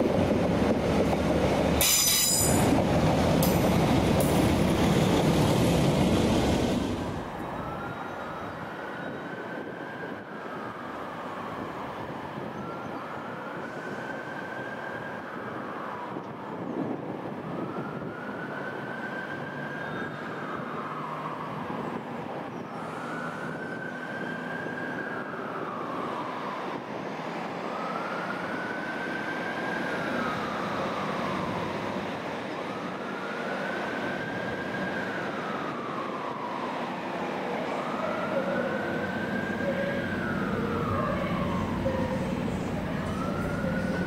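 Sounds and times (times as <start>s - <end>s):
siren wailing: 32.5s - 44.0s.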